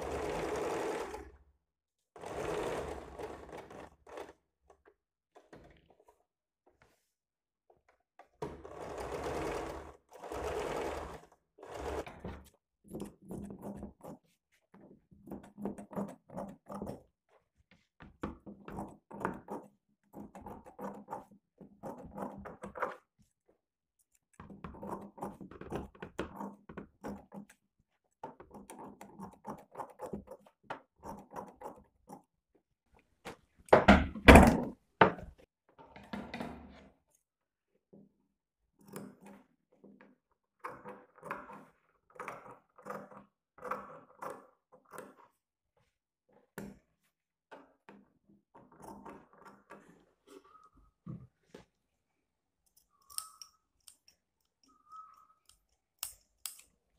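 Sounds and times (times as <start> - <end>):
sewing machine stitching: 0.0 - 1.4, 2.2 - 4.5, 8.4 - 14.1.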